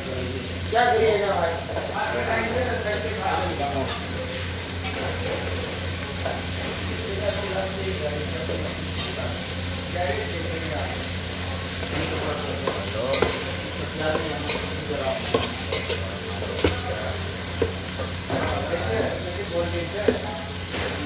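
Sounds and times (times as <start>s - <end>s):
food sizzling: 0.0s - 21.0s
metal spoon scraping a pot: 14.1s - 16.9s.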